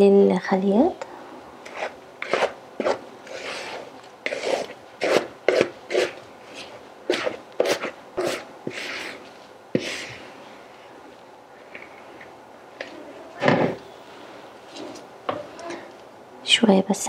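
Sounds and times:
spatula scraping mixing bowl: 0:01.6 - 0:10.2.

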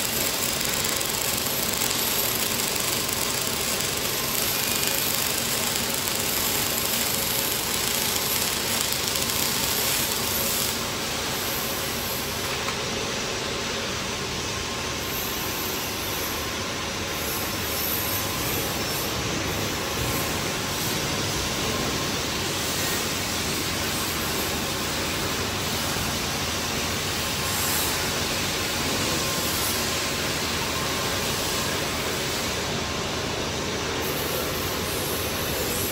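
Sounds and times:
welding arc hissing: 0:00.0 - 0:12.6
workshop hiss: 0:00.0 - 0:35.9.

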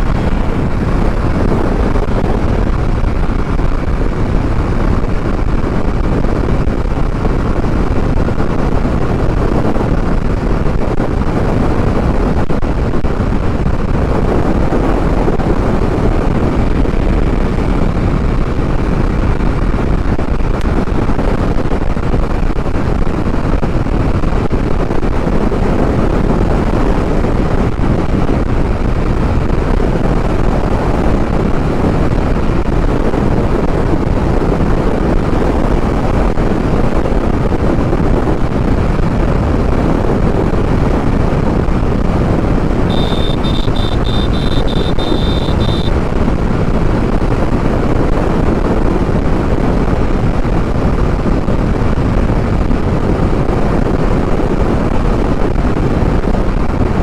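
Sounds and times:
wind buffeting microphone: 0:00.0 - 0:57.0
motorcycle engine running: 0:41.8 - 0:47.0
high rapid beeping: 0:42.9 - 0:45.9.

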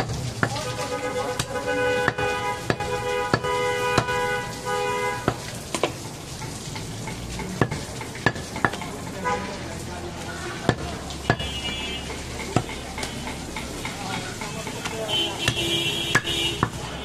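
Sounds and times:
cleaver knocking on chopping block: 0:01.4 - 0:04.2, 0:05.2 - 0:06.0, 0:10.7 - 0:16.8.

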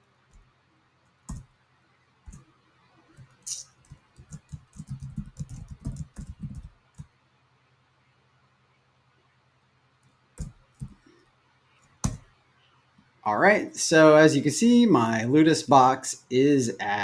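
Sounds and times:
keyboard typing: 0:00.3 - 0:01.6, 0:02.2 - 0:02.5, 0:03.1 - 0:07.1, 0:10.4 - 0:11.1, 0:11.8 - 0:12.3.

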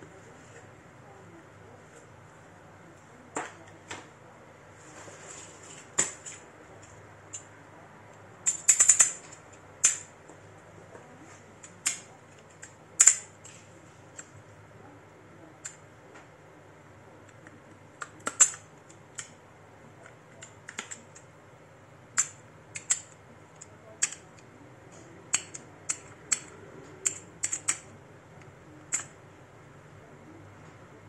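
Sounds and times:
faint steady hum: 0:00.0 - 0:31.0
small plastic and metal parts clicking: 0:08.4 - 0:10.1, 0:11.6 - 0:13.6, 0:18.0 - 0:19.4, 0:22.2 - 0:27.9, 0:28.8 - 0:29.2.

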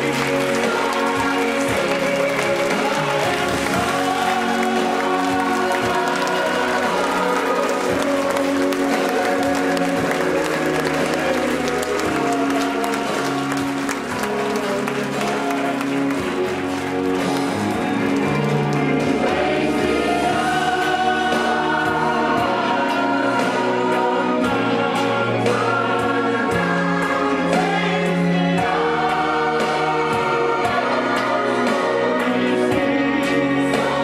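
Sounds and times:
audience clapping along: 0:00.0 - 0:34.0
choir singing sustained notes: 0:00.0 - 0:34.0.

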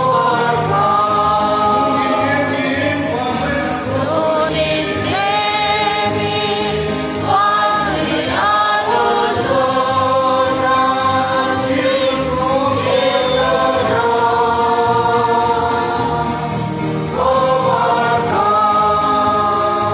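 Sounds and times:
congregation singing a hymn: 0:00.0 - 0:19.9.

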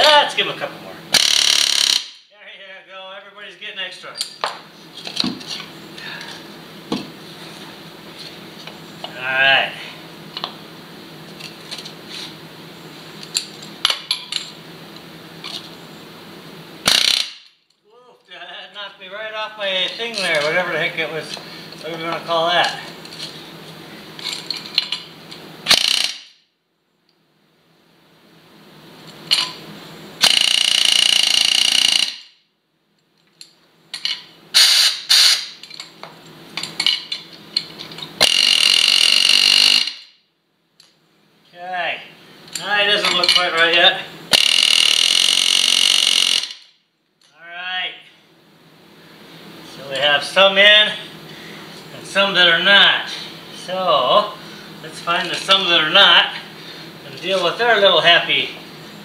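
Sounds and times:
air hammer rapid hammering: 0:01.1 - 0:02.2, 0:16.8 - 0:17.5, 0:30.2 - 0:32.2, 0:34.6 - 0:35.6, 0:38.2 - 0:40.1, 0:44.3 - 0:46.6.

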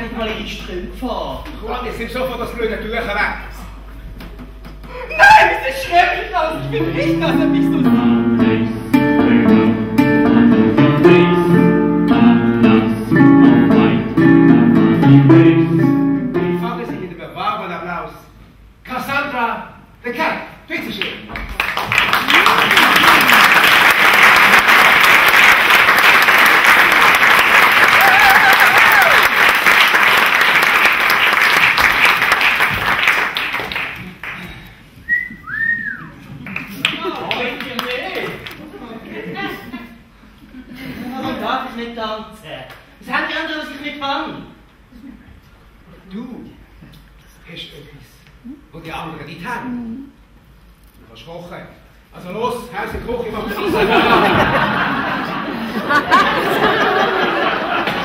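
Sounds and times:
strummed guitar chords: 0:06.5 - 0:17.1
audience applauding: 0:21.3 - 0:34.6, 0:36.4 - 0:38.6, 0:55.9 - 0:58.0
rising and falling whistle: 0:35.1 - 0:36.1.

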